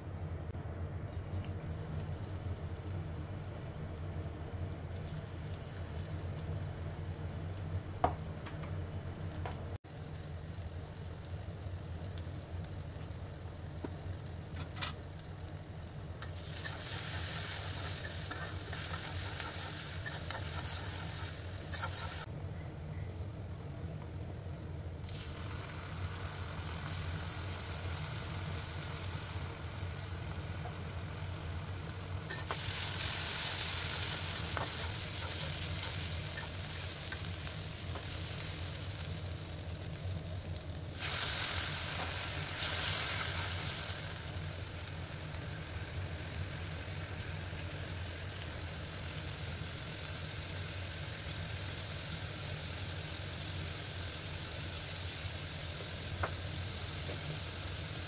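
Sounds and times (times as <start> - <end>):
steady low hum: 0.0 - 58.0
onions sizzling in hot oil: 1.1 - 22.3, 25.0 - 58.0
spatula scraping wok: 16.2 - 22.3, 32.3 - 37.3.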